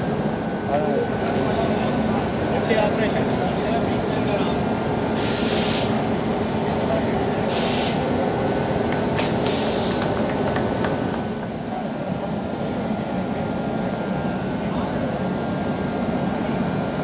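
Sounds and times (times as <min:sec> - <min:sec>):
electric locomotive humming: 0:00.0 - 0:17.0
compressed air hissing: 0:05.2 - 0:06.0, 0:07.5 - 0:08.1, 0:09.2 - 0:10.0.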